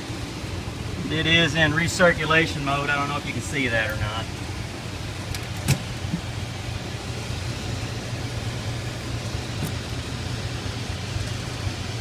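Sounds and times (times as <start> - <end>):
fan motor humming: 0.0 - 12.0.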